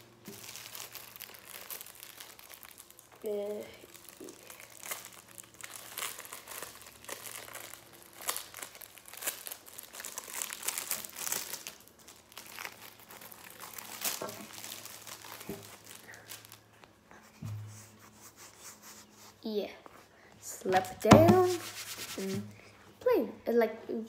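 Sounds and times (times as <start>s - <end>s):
plastic bag crinkling: 0.2s - 16.9s.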